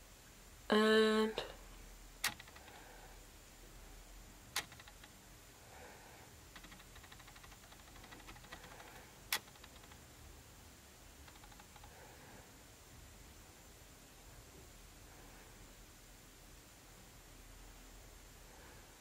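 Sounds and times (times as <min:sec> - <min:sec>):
fine rapid light ticking: 0:02.2 - 0:02.8, 0:04.6 - 0:05.2, 0:06.5 - 0:10.1, 0:11.2 - 0:12.0.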